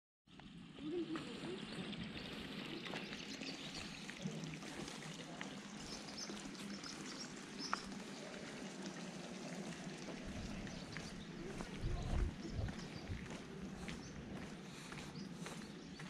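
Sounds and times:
trickling water: 0.3s - 16.0s.

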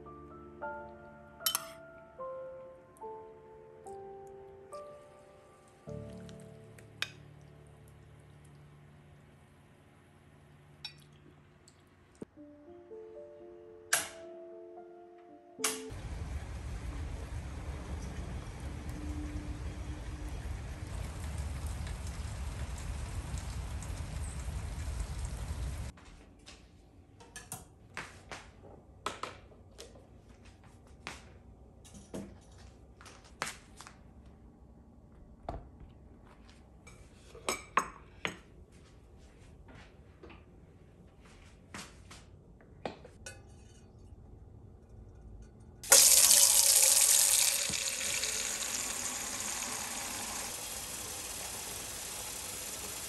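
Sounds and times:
dishes and utensils clinking: 1.4s - 1.8s, 43.2s - 44.2s
tap running into sink: 45.9s - 53.0s.

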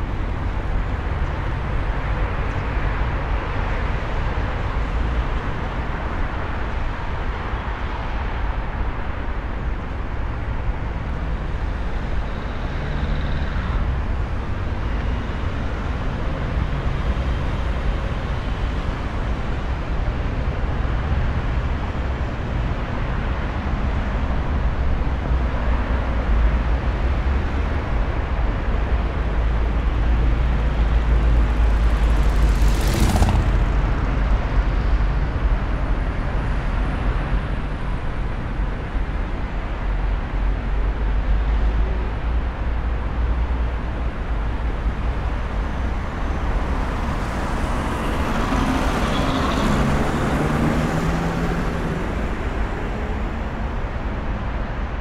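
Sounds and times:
traffic rumble on bridge: 0.0s - 55.0s
vehicle engine passing close: 31.0s - 35.4s.

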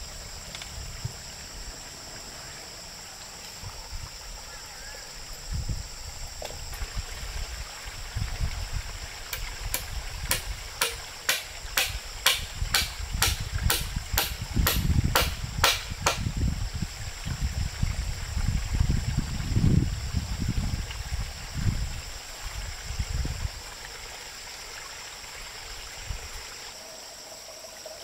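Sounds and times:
hammer striking wooden plank: 9.7s - 16.2s.

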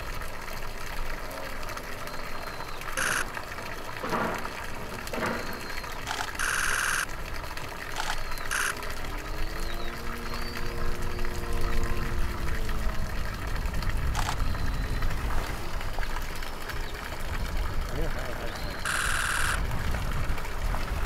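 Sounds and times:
low outdoor rumble: 0.0s - 21.0s
short high-pitched burst: 3.0s - 3.4s, 6.1s - 7.1s, 8.0s - 8.8s, 18.8s - 19.6s
low droning hum: 8.2s - 21.0s.

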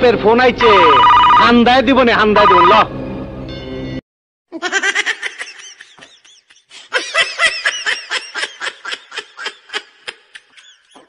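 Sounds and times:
person giggling: 4.6s - 11.0s.

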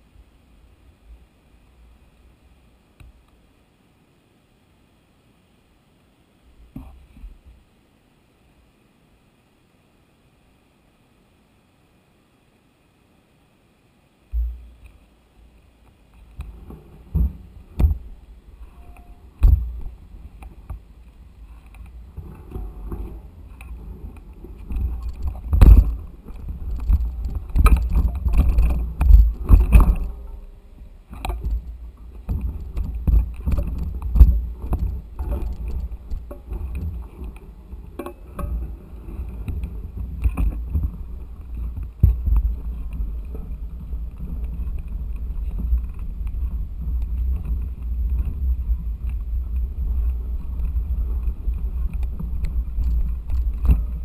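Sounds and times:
bike low rumble: 16.2s - 54.0s
bike knocks and rattles: 16.5s - 18.2s, 18.8s - 20.9s, 21.5s - 30.5s, 31.1s - 37.4s, 38.0s - 54.0s.

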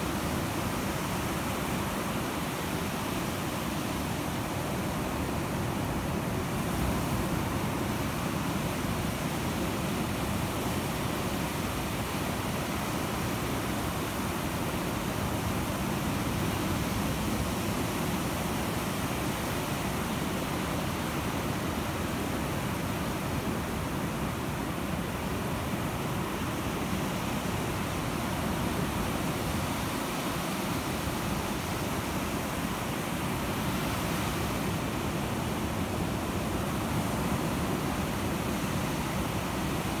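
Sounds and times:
waves breaking on a beach: 0.0s - 40.0s.

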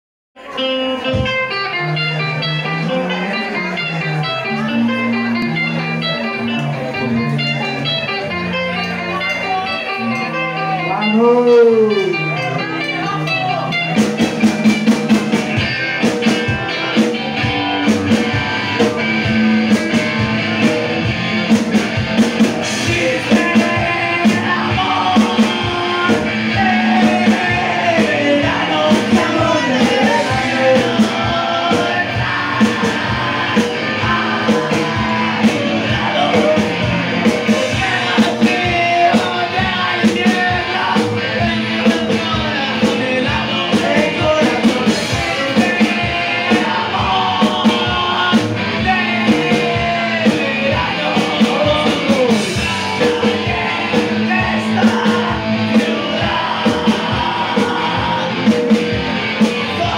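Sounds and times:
drums: 0.4s - 59.9s
electric guitars: 0.4s - 59.9s
rock band playing live: 0.4s - 59.9s
person singing: 8.8s - 15.0s, 22.4s - 59.9s.

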